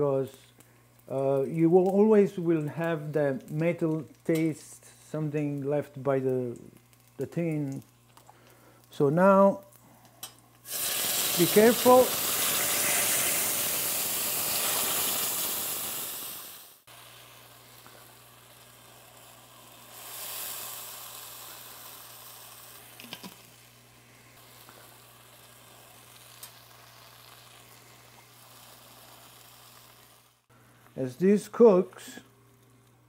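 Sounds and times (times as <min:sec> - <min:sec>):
sauce sizzling in a pan: 0:06.5 - 0:08.9, 0:10.4 - 0:30.5.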